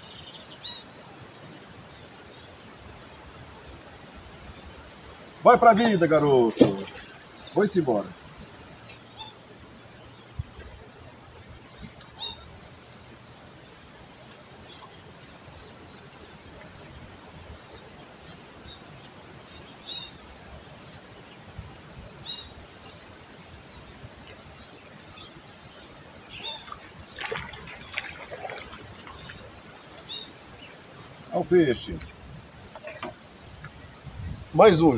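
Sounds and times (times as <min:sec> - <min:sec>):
fish splashing in water: 0:06.4 - 0:07.3, 0:26.6 - 0:30.2.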